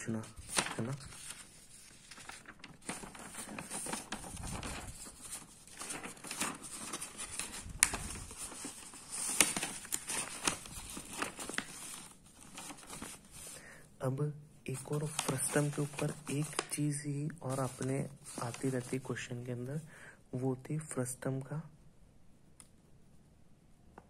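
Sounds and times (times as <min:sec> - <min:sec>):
paper rustling and crinkling: 0:00.0 - 0:13.6, 0:14.7 - 0:19.3
paper snapping: 0:05.8 - 0:08.2.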